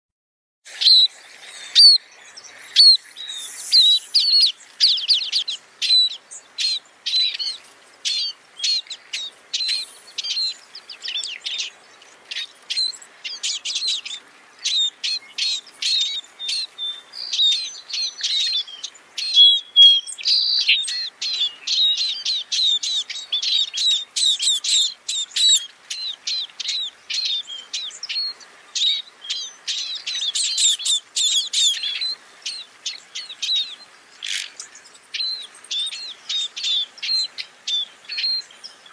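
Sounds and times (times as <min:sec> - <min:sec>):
bird chirps and whistles: 0:02.8 - 0:11.7, 0:12.3 - 0:32.6.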